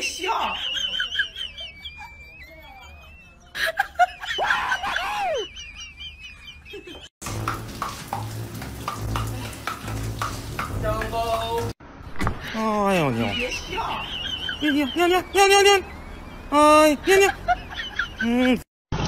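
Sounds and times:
person laughing or exclaiming: 0.1s - 6.0s, 16.8s - 18.7s
shower water running: 7.2s - 11.8s
small birds chirping: 12.5s - 18.6s.

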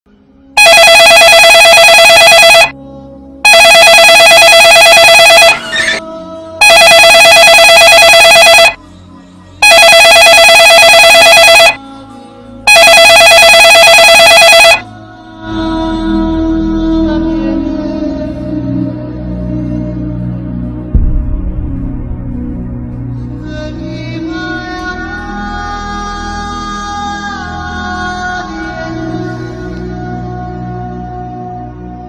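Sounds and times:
soft music: 0.1s - 32.0s
mobile phone ringing: 0.6s - 2.8s, 3.4s - 6.0s, 6.6s - 8.8s, 9.6s - 11.8s, 12.7s - 14.9s.

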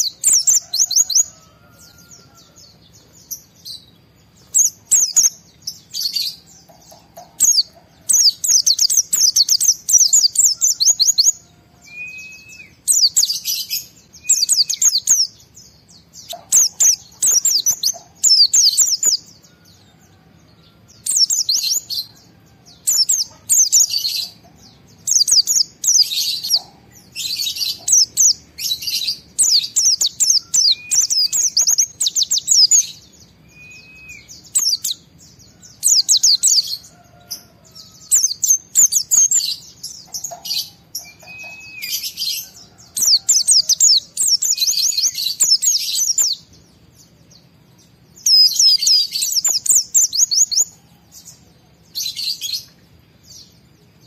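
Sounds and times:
bird rapid high chattering: 12.8s - 19.3s, 22.9s - 33.0s.

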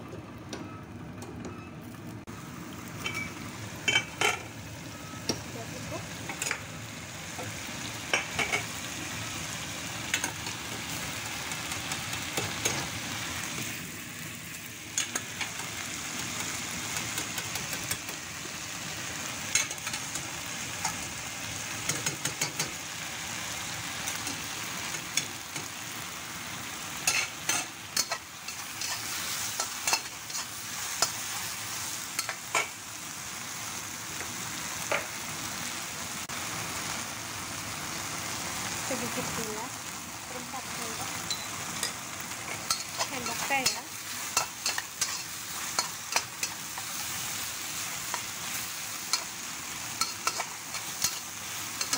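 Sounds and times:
vegetables sizzling in a wok: 2.0s - 51.9s
spatula scraping and clinking on wok: 41.2s - 47.0s.

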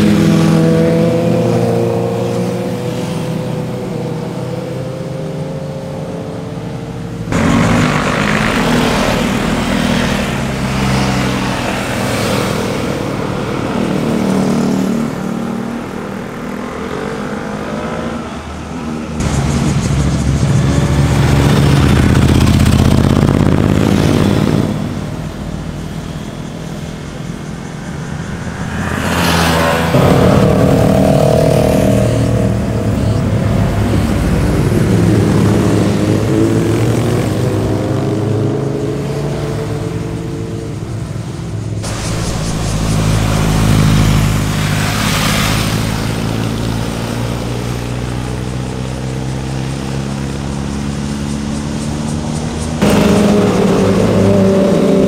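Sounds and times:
motorcycles revving past: 0.0s - 55.0s.

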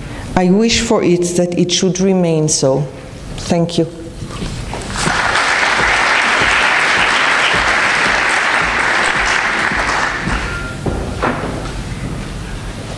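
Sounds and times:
audience applauding: 4.8s - 10.8s.

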